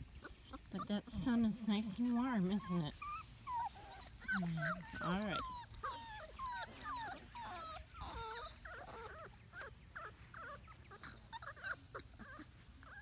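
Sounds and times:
puppies whimpering and squeaking: 0.0s - 13.0s.

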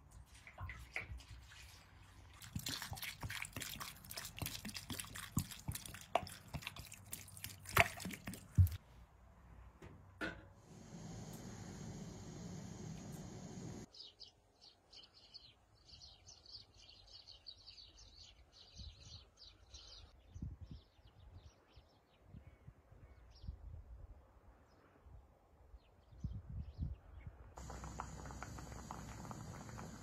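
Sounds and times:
pot boiling on gas burner hiss: 10.6s - 13.9s, 27.6s - 30.0s.

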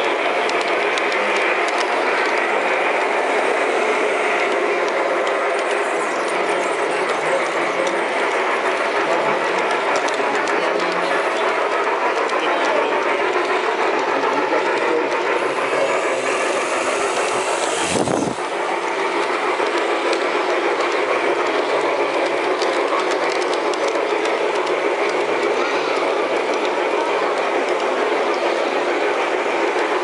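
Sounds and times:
model train wheels rattling on track: 0.0s - 30.0s
helicopter whoosh with air rumble: 16.2s - 19.7s.

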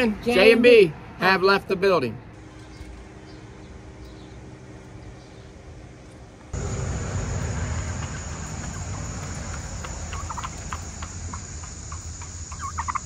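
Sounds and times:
steady low rumble: 3.4s - 13.0s
farm animal calls: 6.6s - 13.0s.

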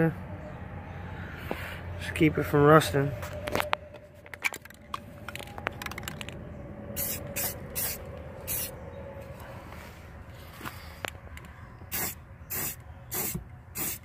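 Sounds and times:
aerosol can spraying: 11.9s - 14.0s.

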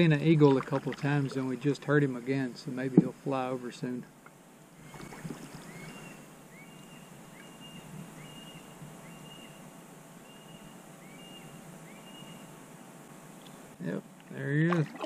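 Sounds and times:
bird whistling and chirping: 5.6s - 9.6s, 10.2s - 12.4s.

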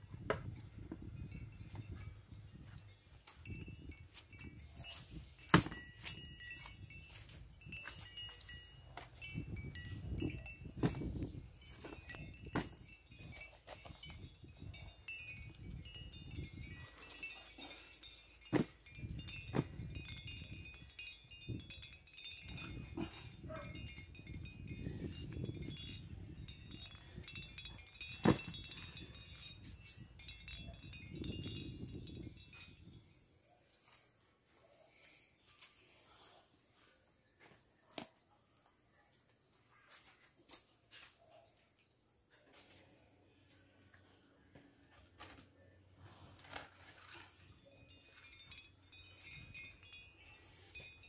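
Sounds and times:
bananas rustling when handled: 39.2s - 51.0s.

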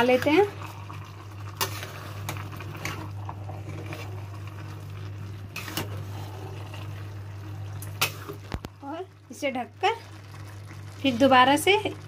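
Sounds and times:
steady low hum: 0.0s - 12.0s
ladle stirring rice in pot: 1.4s - 8.6s
ladle scraping and knocking pot: 5.6s - 6.6s.

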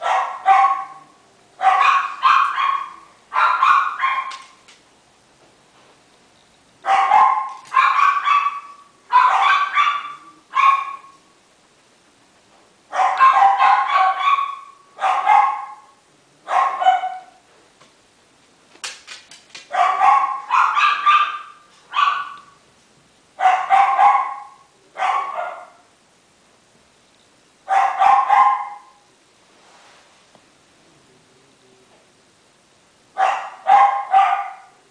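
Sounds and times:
puppy yapping: 0.0s - 4.6s, 6.8s - 11.2s, 13.0s - 15.9s, 19.7s - 22.6s, 23.4s - 25.8s, 27.7s - 29.0s, 33.2s - 34.8s.

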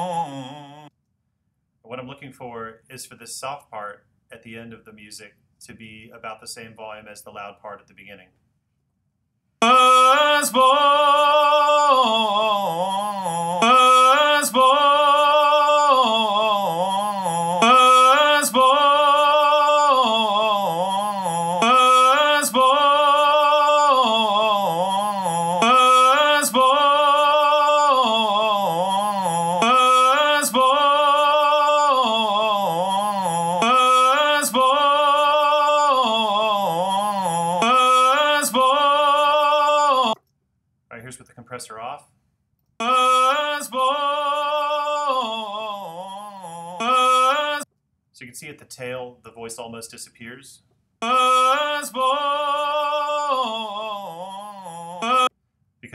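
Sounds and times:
recorded singing voice with vibrato: 0.0s - 0.9s, 9.6s - 40.2s, 42.8s - 47.7s, 51.0s - 55.4s.

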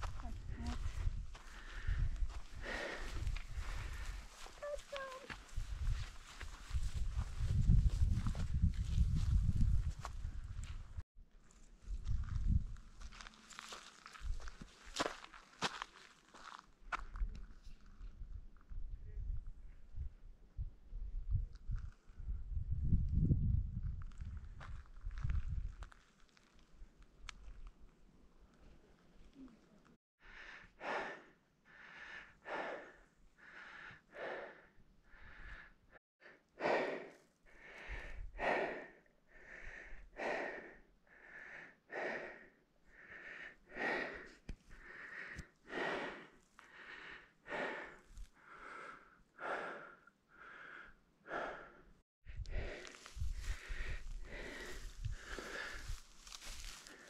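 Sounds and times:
person breathing hard: 0.1s - 4.7s, 30.2s - 57.0s.

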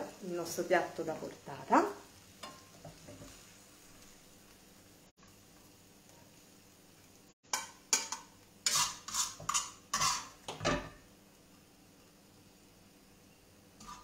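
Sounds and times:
utensil scraping a frying pan: 2.4s - 4.1s, 7.5s - 11.0s, 13.8s - 14.0s.

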